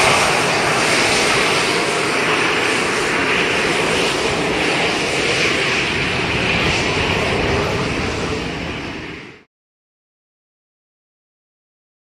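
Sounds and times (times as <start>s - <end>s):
jet engines running: 0.0s - 9.5s.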